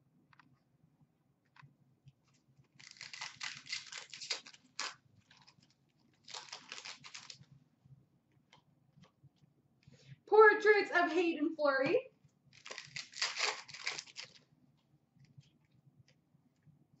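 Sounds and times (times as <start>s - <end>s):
foil wrapper tearing and crinkling: 2.8s - 7.4s, 12.5s - 14.4s.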